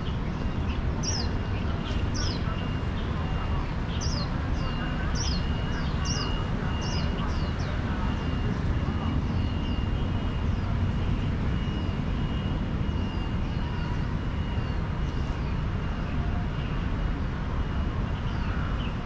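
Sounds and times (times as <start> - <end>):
small birds chirping: 0.0 - 10.9
low rumble of city traffic: 0.0 - 19.0.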